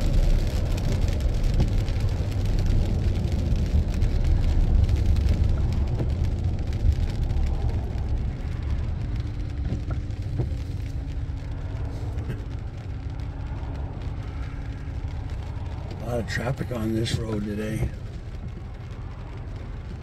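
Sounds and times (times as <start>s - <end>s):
vehicle cabin road noise: 0.0s - 20.0s
windshield wiper sweeping: 0.5s - 13.3s, 14.0s - 20.0s.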